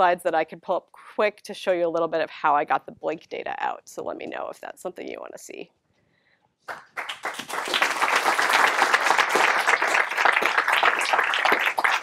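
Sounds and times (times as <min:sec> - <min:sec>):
audience applauding: 0:06.7 - 0:12.0.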